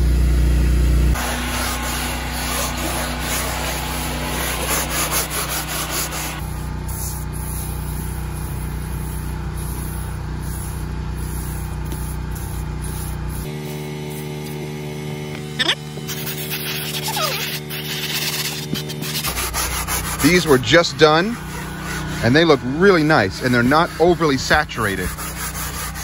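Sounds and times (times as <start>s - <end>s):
aerosol can spraying: 1.2s - 14.6s, 16.0s - 20.6s.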